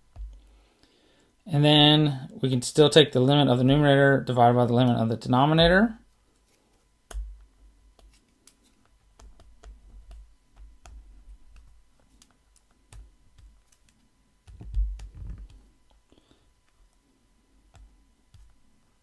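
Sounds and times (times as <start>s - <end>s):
stylus tapping and scraping on tablet: 6.3s - 16.0s.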